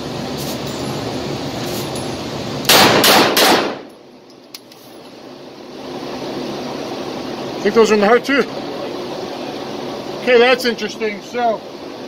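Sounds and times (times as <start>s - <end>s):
pistol shots echoing indoors: 2.7s - 3.8s.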